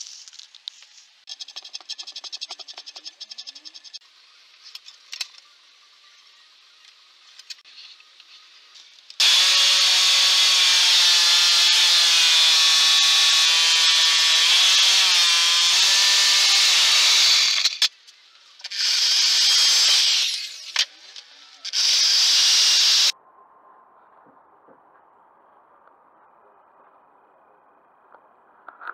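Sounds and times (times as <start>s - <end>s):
power tool whining into wood: 9.2s - 17.9s, 18.6s - 20.8s, 21.6s - 23.1s.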